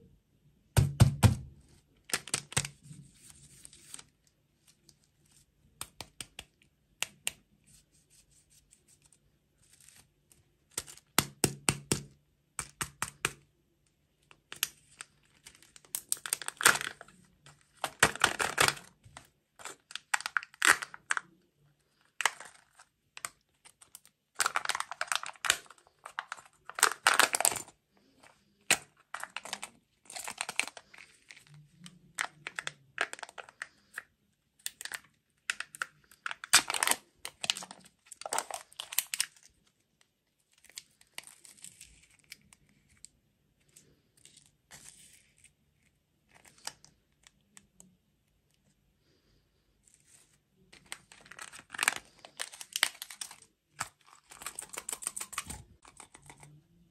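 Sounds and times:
plastic crinkling and tearing: 2.0s - 7.2s, 14.3s - 39.8s, 40.5s - 43.1s, 50.0s - 56.9s.

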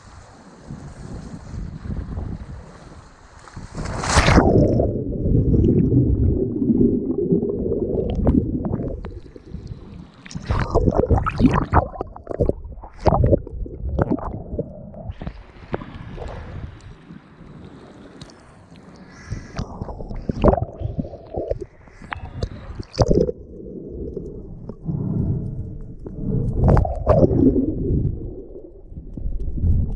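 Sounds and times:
water splashing and sloshing: 2.6s - 25.2s
underwater gurgling rumble: 3.6s - 18.3s, 19.4s - 29.9s.

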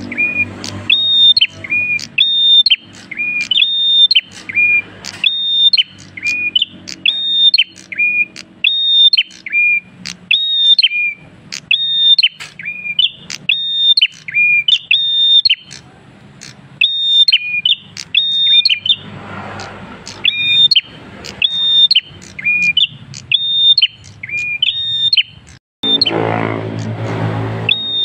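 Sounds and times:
caged bird singing whistled phrase: 0.0s - 26.2s, 27.6s - 28.0s
bird sharp quick clicks: 0.6s - 8.5s, 11.5s - 14.9s.

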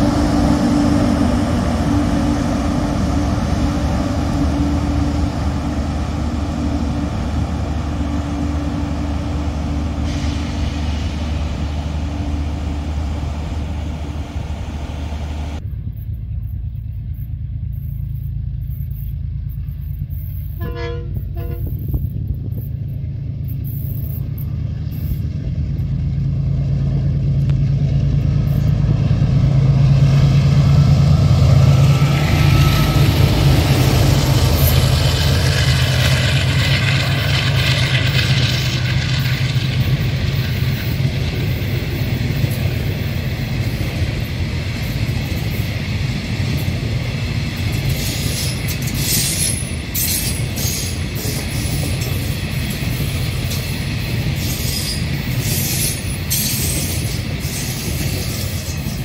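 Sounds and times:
locomotive engine drone: 0.0s - 59.0s
train horn toot: 20.6s - 22.0s, 32.0s - 34.2s.

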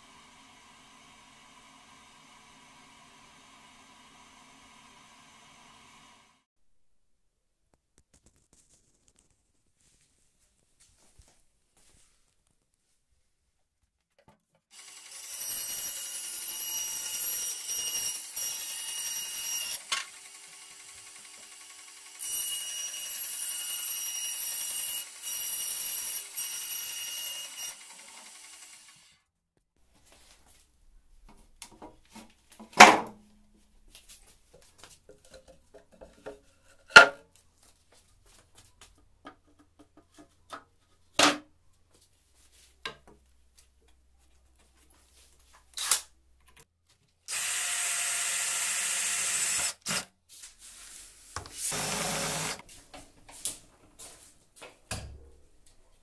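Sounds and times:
cordless drill driving screws: 47.3s - 50.1s, 51.6s - 52.6s
band saw whining: 51.6s - 52.6s.

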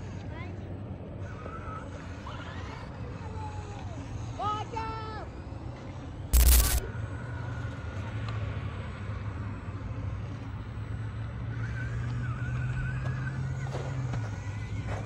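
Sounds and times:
low hum: 6.4s - 6.9s.

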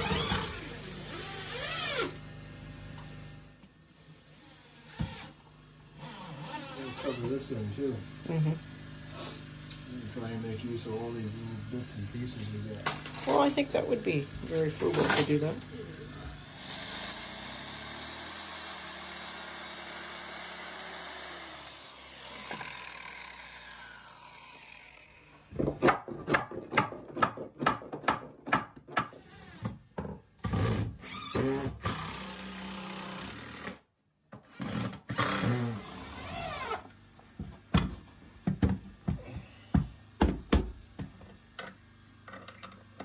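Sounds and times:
circular saw cutting wood: 0.0s - 2.3s, 3.6s - 9.5s, 10.2s - 25.5s, 29.1s - 29.7s, 30.4s - 33.8s, 34.5s - 36.9s.

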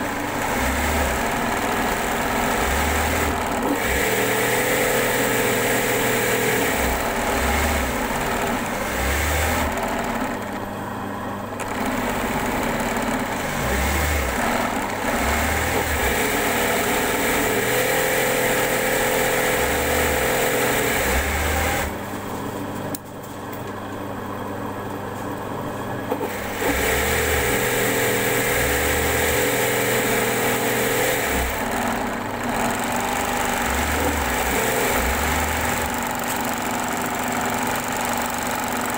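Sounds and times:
electric sewing machine running: 0.0s - 10.8s, 11.4s - 22.2s, 26.2s - 38.9s.

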